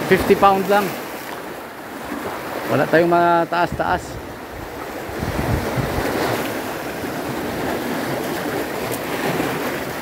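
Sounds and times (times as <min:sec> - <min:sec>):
surf washing on shore: 0:00.0 - 0:10.0
wind buffeting microphone: 0:03.6 - 0:10.0.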